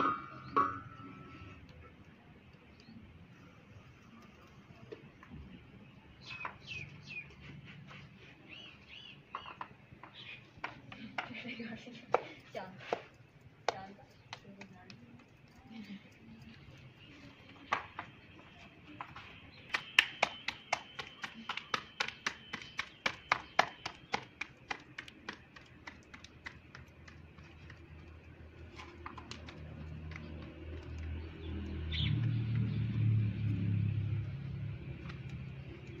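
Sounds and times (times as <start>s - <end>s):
hands slapping dough: 19.7s - 27.5s.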